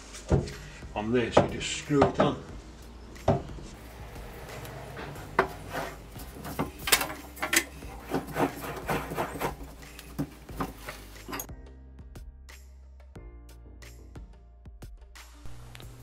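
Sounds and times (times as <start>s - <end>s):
wood knocking and scraping on metal: 3.2s - 11.5s.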